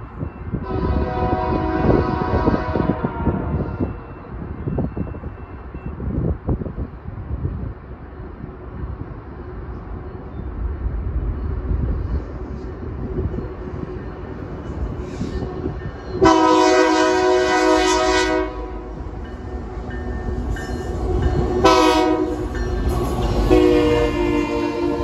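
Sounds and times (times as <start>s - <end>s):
train rumble: 0.0s - 25.0s
locomotive air horn blasts: 0.6s - 3.9s, 16.2s - 19.0s, 21.6s - 22.5s, 23.4s - 25.0s.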